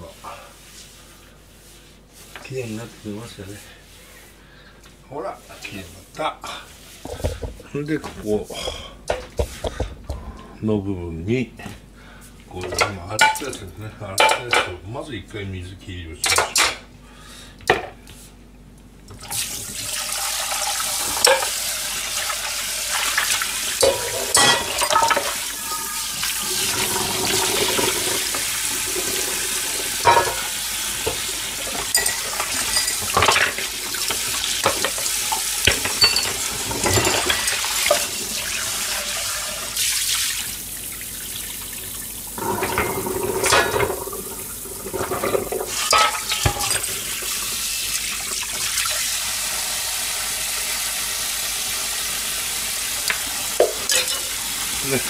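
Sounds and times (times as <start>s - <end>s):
crockery and utensils clinking: 23.8s - 28.3s, 30.0s - 38.2s, 42.4s - 44.0s, 44.9s - 47.2s, 53.6s - 54.4s.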